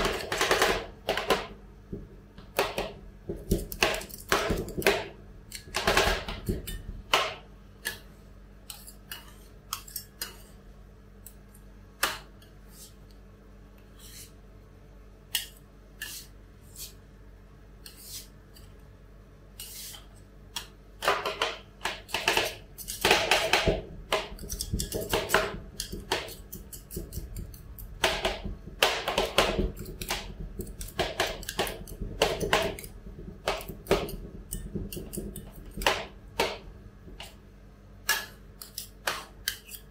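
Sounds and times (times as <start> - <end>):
metal spatulas tapping and scraping: 2.5 - 10.6, 15.3 - 17.0, 17.8 - 18.8, 19.6 - 37.4, 38.0 - 39.9.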